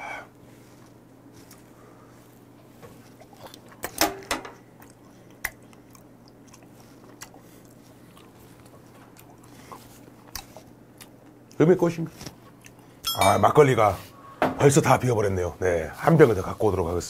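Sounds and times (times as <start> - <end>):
man chewing with mouth clicks: 0.4 - 4.0, 4.6 - 11.6, 12.2 - 13.1.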